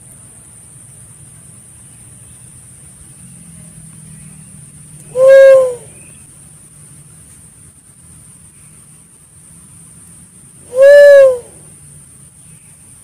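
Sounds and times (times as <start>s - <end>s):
faint high-pitched hiss: 0.0s - 13.0s
dove cooing: 5.1s - 6.0s, 10.7s - 11.6s.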